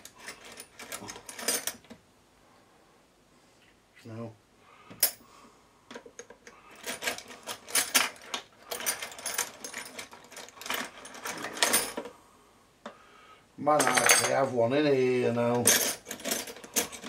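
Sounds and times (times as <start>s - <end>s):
metal drill bits rattling in box: 6.7s - 12.1s, 15.3s - 17.0s.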